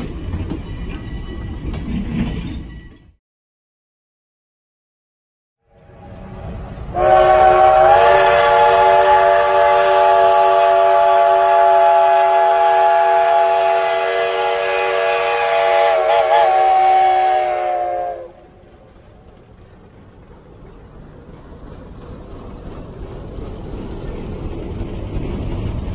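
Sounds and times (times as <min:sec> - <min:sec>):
steam locomotive whistle blowing: 0:05.9 - 0:18.5.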